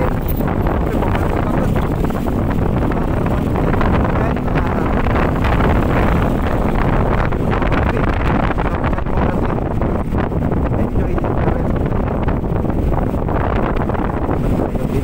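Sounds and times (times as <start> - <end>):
scooter engine running: 0.0 - 10.8
road noise: 0.0 - 15.0
wind rushing over microphone: 0.0 - 15.0.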